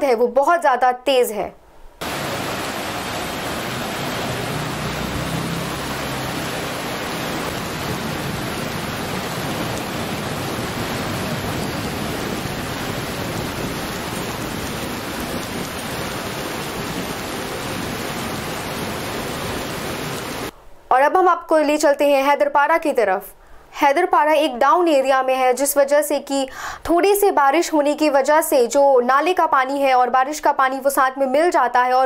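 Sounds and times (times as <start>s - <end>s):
river rushing: 2.0s - 20.5s.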